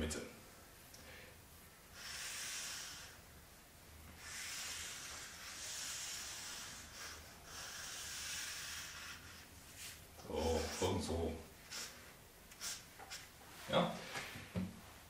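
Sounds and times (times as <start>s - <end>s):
marker scratching on paper: 4.2s - 11.1s, 11.7s - 13.4s.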